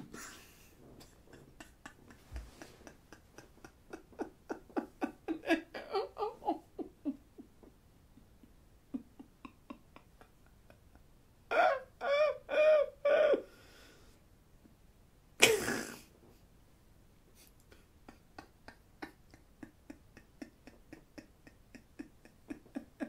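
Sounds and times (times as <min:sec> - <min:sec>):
man laughing breathily: 0:00.0 - 0:07.6, 0:08.4 - 0:13.5, 0:17.4 - 0:23.0.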